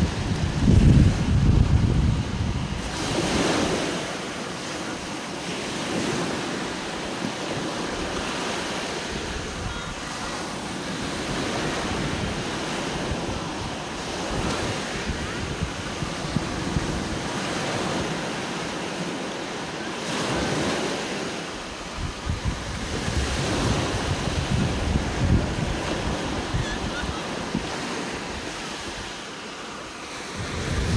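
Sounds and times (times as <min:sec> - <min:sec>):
wind rumble on microphone: 0:00.0 - 0:04.8, 0:05.4 - 0:19.0, 0:20.1 - 0:29.2, 0:30.2 - 0:30.9
surf waves breaking on beach: 0:00.0 - 0:30.9.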